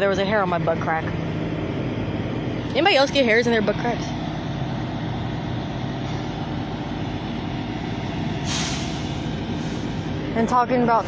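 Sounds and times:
truck engine idling: 0.0s - 11.0s
air brakes hissing: 8.4s - 10.1s.

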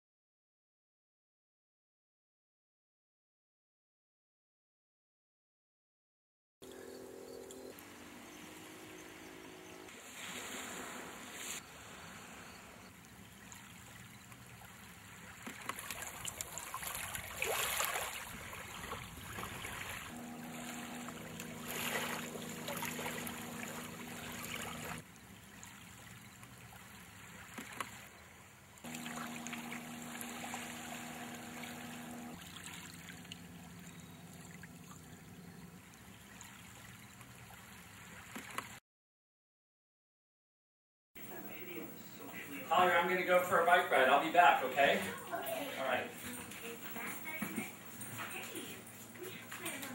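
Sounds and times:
small waves lapping on beach: 7.8s - 35.1s, 35.8s - 38.8s
steady low hum: 20.1s - 25.0s, 28.9s - 36.0s.

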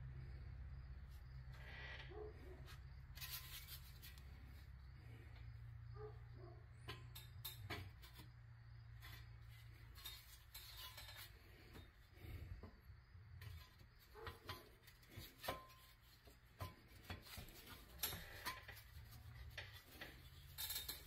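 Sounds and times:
toy truck scraping and clicking: 3.0s - 5.2s, 6.9s - 12.4s, 13.4s - 21.0s.

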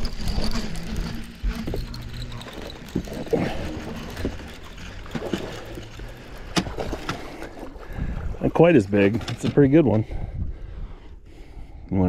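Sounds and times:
fishing reel knocks and rubs: 0.0s - 7.3s.

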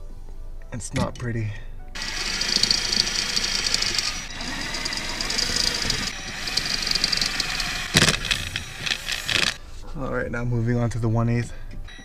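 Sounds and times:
cordless drill grinding through metal: 2.0s - 9.6s.

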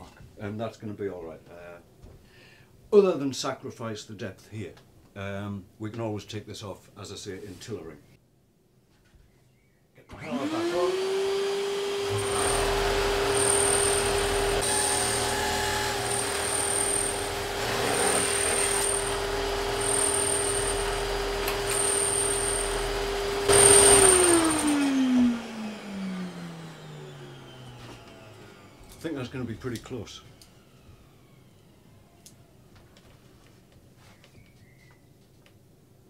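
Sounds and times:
drum sander humming: 10.2s - 32.2s
wood being sanded: 10.3s - 26.0s.

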